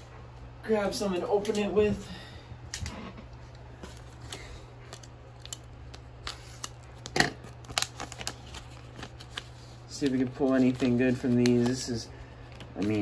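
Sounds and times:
scissors cutting plastic blister pack: 3.9 - 12.0.

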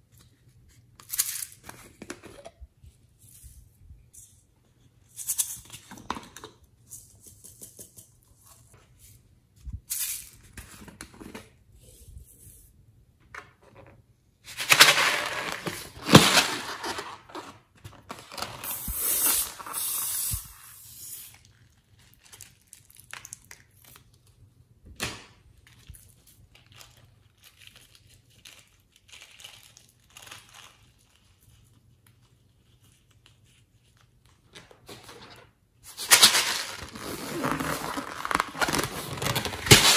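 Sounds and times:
rubber balloon crinkling and tearing: 14.5 - 20.4, 35.9 - 39.9.

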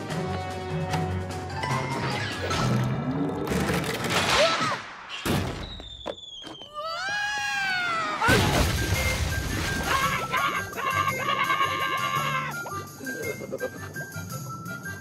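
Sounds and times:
music: 0.0 - 4.1, 8.3 - 15.0
water balloon bursting and splashing: 8.2 - 10.5.

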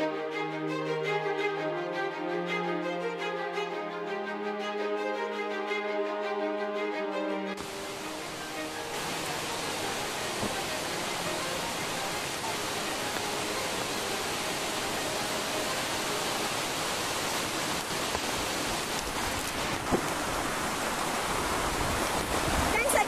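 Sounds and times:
rushing water hiss: 7.6 - 23.0.

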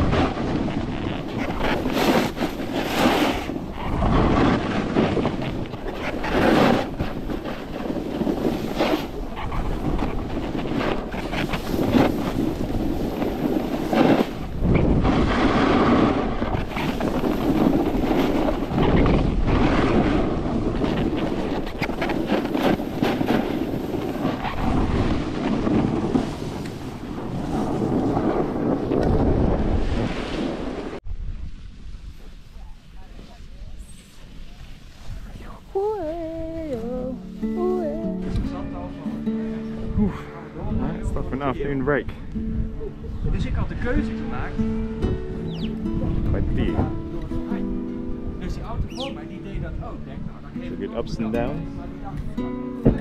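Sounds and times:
snowboard scraping over snow: 0.0 - 31.0
wind buffeting microphone: 0.0 - 53.0.

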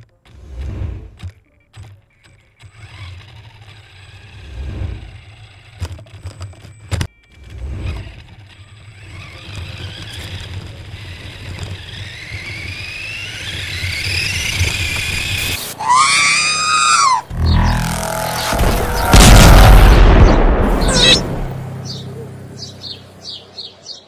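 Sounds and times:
toy car wheels rumbling: 0.0 - 17.5
electric motor whine: 7.4 - 20.0.

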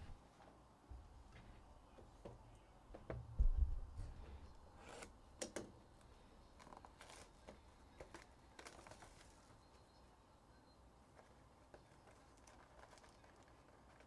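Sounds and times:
dull low thump: 3.3 - 4.2
plastic wrapping crinkling: 6.6 - 9.7, 11.1 - 14.0.

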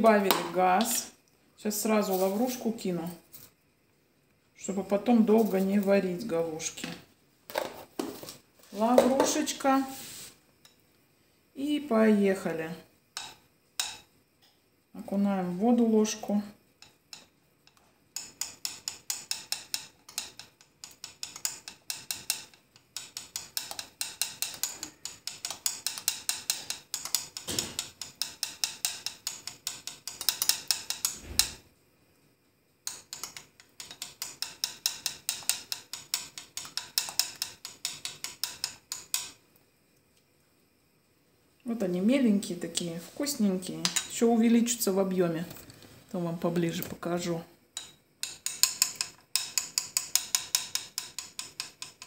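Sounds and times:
teaspoon clicking against bowl rim: 47.8 - 52.0.

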